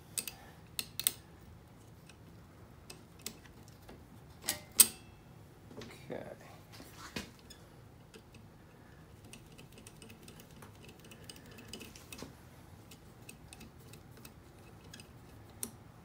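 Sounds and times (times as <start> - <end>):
small metal parts clicking: 0.1 - 1.2, 9.1 - 12.2, 12.8 - 15.8.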